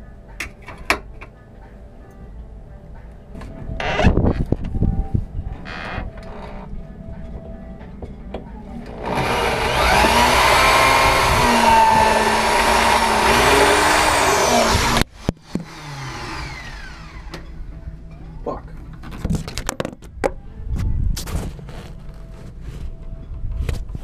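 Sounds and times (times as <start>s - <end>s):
small motor running: 9.0s - 15.0s.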